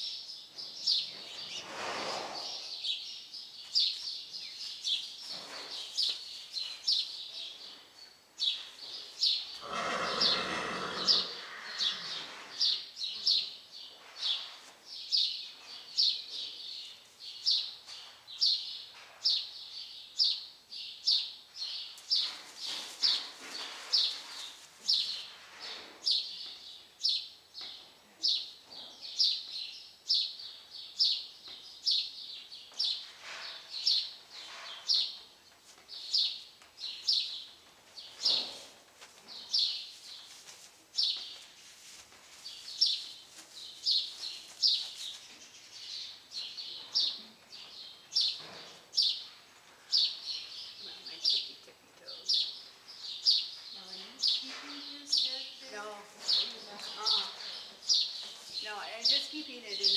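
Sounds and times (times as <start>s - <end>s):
small bird chirping: 42.5s - 59.9s.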